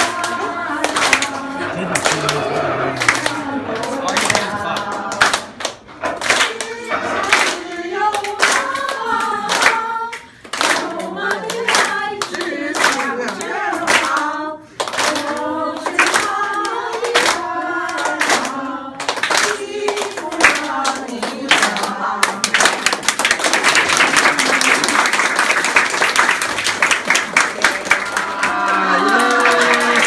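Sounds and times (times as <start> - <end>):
group of people singing: 0.0 - 23.1
hands clapping in steady beat: 0.0 - 30.0.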